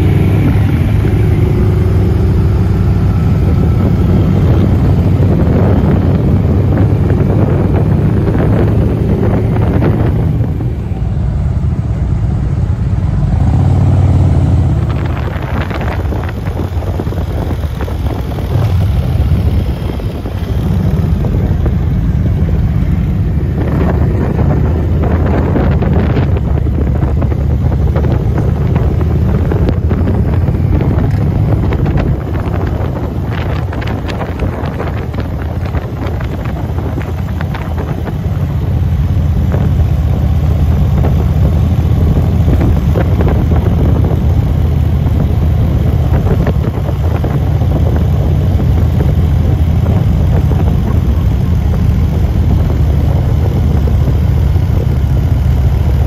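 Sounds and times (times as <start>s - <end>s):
motorcycle engines running: 0.0s - 56.0s
wind buffeting microphone: 0.0s - 56.0s.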